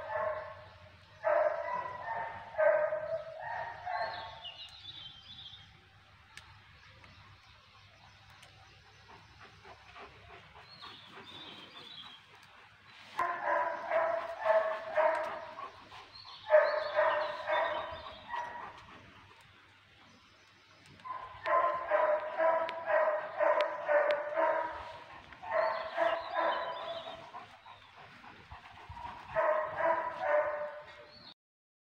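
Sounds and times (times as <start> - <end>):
dog barking: 0.0 - 4.5, 13.2 - 15.8, 16.4 - 18.8, 21.0 - 27.3, 29.3 - 31.1.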